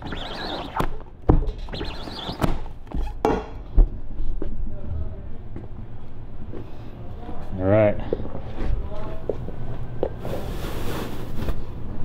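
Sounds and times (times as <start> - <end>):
squeegee rasping across mesh: 0.0 - 0.8.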